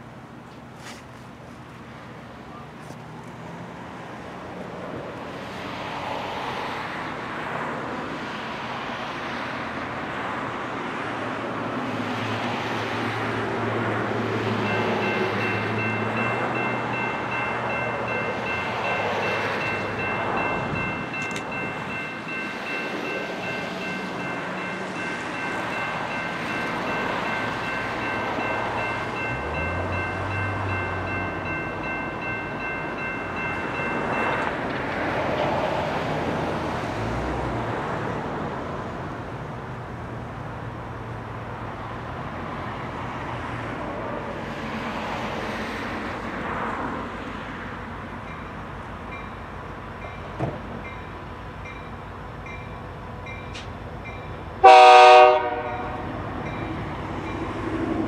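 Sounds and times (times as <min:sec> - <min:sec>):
train rumbling: 0:00.0 - 0:58.0
crossing warning bell ringing: 0:14.4 - 0:35.3, 0:48.2 - 0:57.8.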